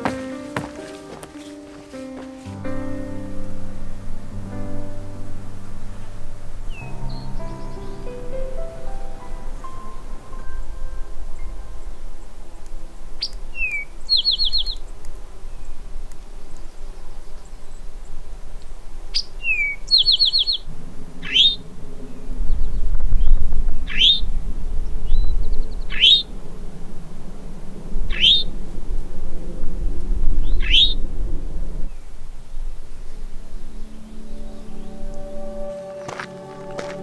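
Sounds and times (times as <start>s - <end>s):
low rumble: 2.6s - 13.2s
bird song with trill: 4.5s - 15.8s, 19.1s - 26.4s, 28.0s - 28.6s, 30.4s - 31.1s, 32.9s - 37.0s.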